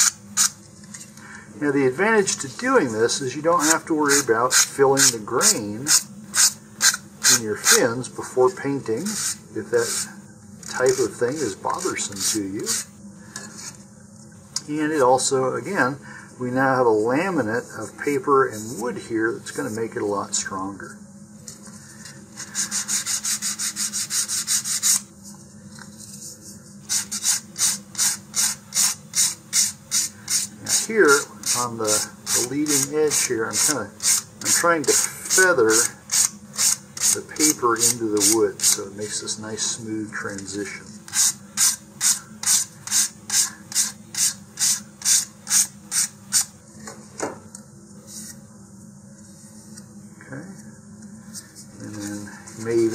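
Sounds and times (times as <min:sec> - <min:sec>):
sandpaper rasping on wood: 0:09.1 - 0:10.1, 0:10.8 - 0:12.9, 0:22.4 - 0:25.1, 0:26.9 - 0:38.8, 0:41.1 - 0:46.5.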